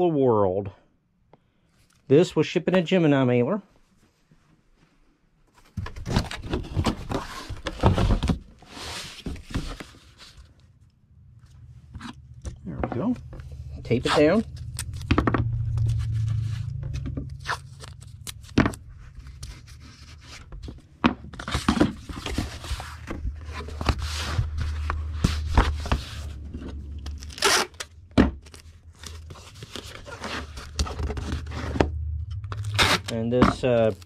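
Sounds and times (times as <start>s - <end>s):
cardboard scrapes and crinkles: 6.0s - 10.5s, 17.4s - 27.8s, 28.5s - 31.8s
steady low hum: 10.8s - 34.0s
packing tape pulled and torn: 27.0s - 31.5s, 32.4s - 33.2s.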